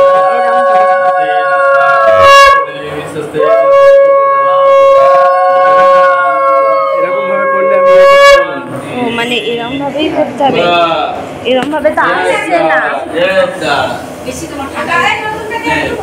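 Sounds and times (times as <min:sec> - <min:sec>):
conch shell blasts: 0:00.0 - 0:08.8.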